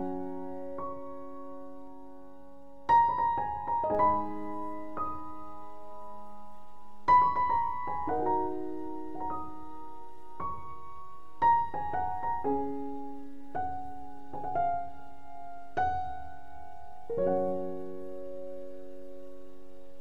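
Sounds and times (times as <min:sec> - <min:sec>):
gentle piano music: 0:00.0 - 0:20.0.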